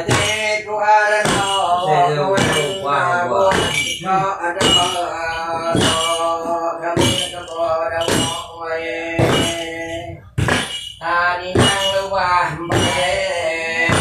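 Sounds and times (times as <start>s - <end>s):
wooden staffs thumping floor: 0.0s - 0.5s, 1.2s - 2.9s, 3.5s - 6.3s, 7.0s - 8.5s, 9.1s - 11.0s, 11.6s - 14.0s
voices chanting long notes: 1.1s - 10.1s.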